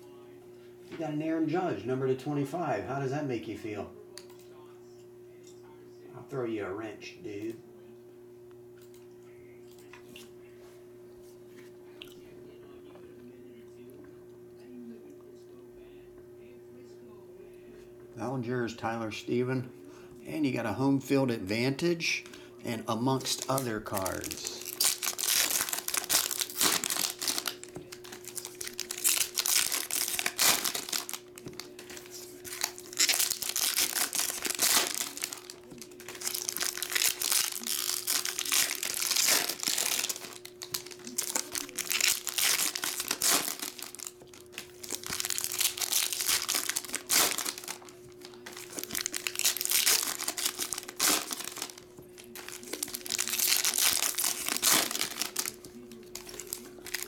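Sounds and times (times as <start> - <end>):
foil wrappers crinkling and tearing: 21.7 - 57.0.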